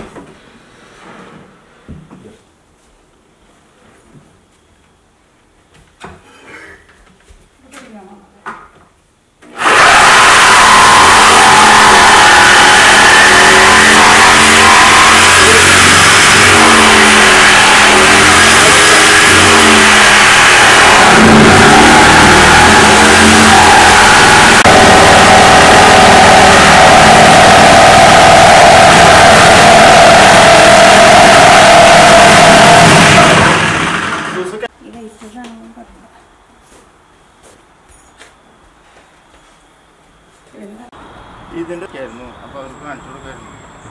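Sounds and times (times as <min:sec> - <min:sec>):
reciprocating saw cutting countertop: 0:09.5 - 0:34.7.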